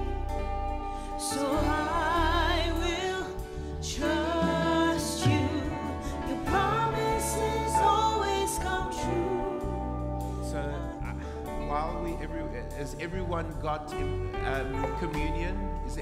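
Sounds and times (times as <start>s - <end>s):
acoustic guitar: 0.0s - 16.0s
held keyboard chords: 0.0s - 16.0s
sustained bass: 0.0s - 16.0s
person singing with vibrato: 1.0s - 11.8s.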